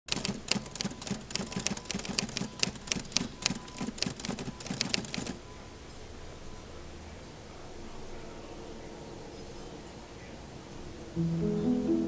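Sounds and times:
typewriter keys clacking: 0.0 - 5.4.

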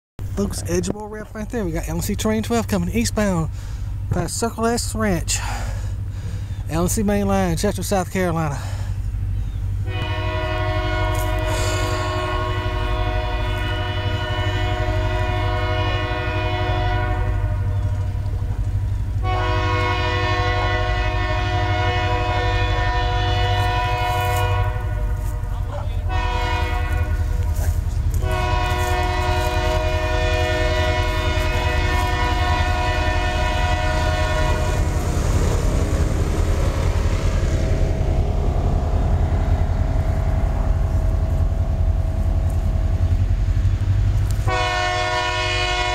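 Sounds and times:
train rumble: 0.2 - 45.9
locomotive horn blasts: 9.8 - 18.4, 19.1 - 36.4, 37.1 - 43.3, 44.2 - 45.9.

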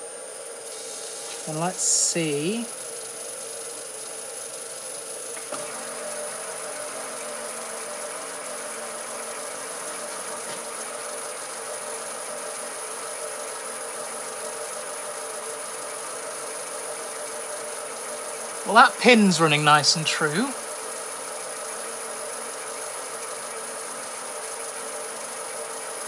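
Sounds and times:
metal lathe running: 0.2 - 19.6.

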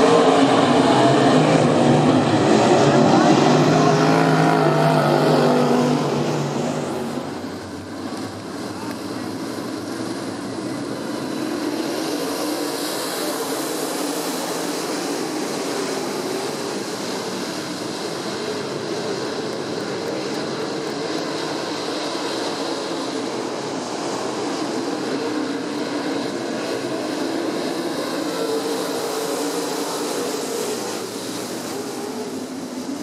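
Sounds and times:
loud car passing close: 0.0 - 18.9
race car engines: 0.0 - 33.0.

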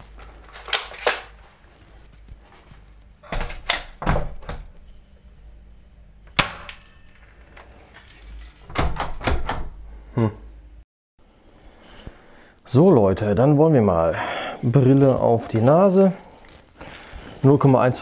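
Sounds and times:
door rattling against frame: 8.1 - 9.8.

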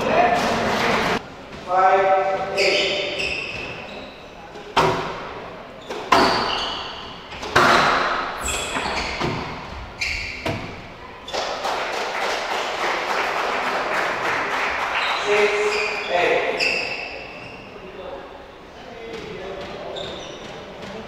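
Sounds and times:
shoe squeaks: 2.3 - 4.7, 5.7 - 11.5, 15.0 - 17.9, 19.6 - 21.0
squash ball hitting walls: 4.6 - 11.5.

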